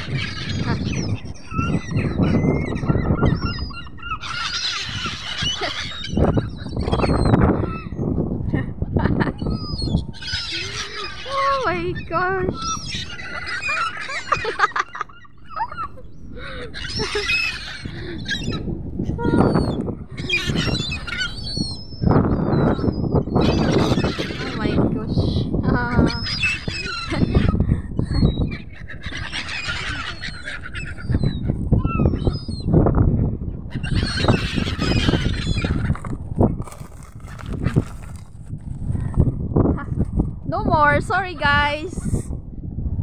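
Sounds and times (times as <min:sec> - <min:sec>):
gulls calling: 0:00.0 - 0:08.0, 0:09.1 - 0:32.8, 0:33.6 - 0:36.2
low rumbling buffeting microphone: 0:00.0 - 0:43.0.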